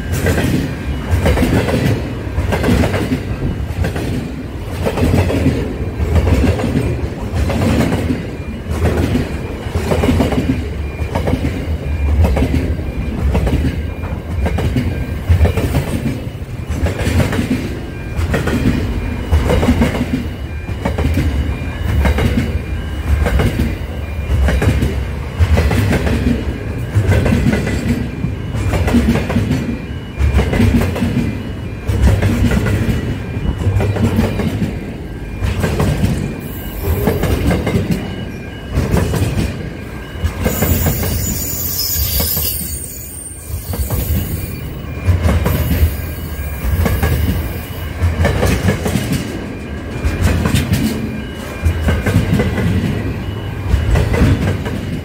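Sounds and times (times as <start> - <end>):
freight train rumbling past: 0.0 - 55.0
train wheels clattering: 0.0 - 55.0
wheel squeal: 40.2 - 47.9.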